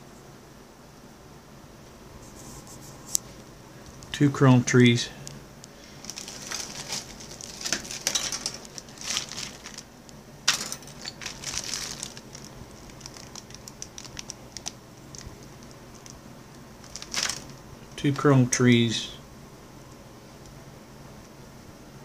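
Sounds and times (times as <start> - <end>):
stiff plastic crinkling rustle: 5.2 - 17.6
plastic parts clicking and tapping: 6.1 - 9.8.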